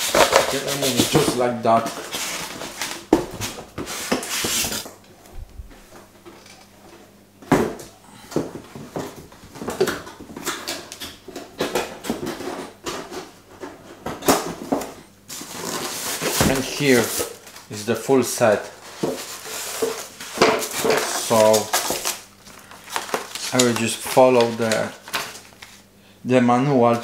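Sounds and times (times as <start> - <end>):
cardboard and foam rubbing: 3.7 - 4.8.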